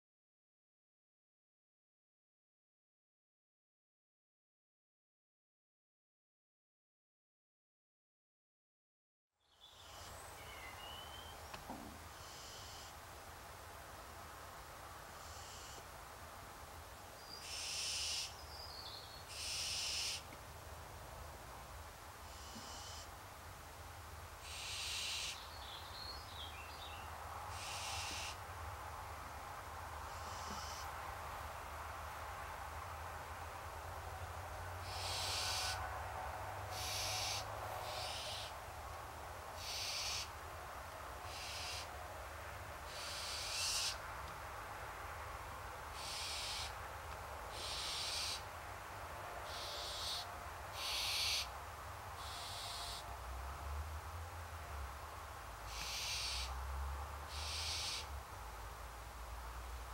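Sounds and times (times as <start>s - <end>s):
owl wheezy hissing call: 12.1s - 13.0s, 15.1s - 15.8s, 17.4s - 18.4s, 19.3s - 20.3s, 22.2s - 23.1s, 24.4s - 25.4s, 27.5s - 28.4s, 30.1s - 30.9s, 34.8s - 35.9s, 36.7s - 38.6s, 39.6s - 40.3s, 41.2s - 41.9s, 42.9s - 44.0s, 45.9s - 46.8s, 47.5s - 48.5s, 49.4s - 51.5s, 52.2s - 53.1s, 55.7s - 56.6s, 57.3s - 58.1s
faint chirping: 22.3s - 23.1s.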